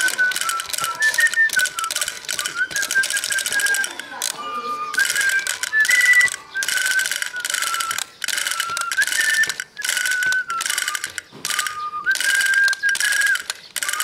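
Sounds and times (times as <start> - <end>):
thin electronic toy melody: 0.0 - 14.0
toy mechanism clicking clatter: 0.0 - 14.0.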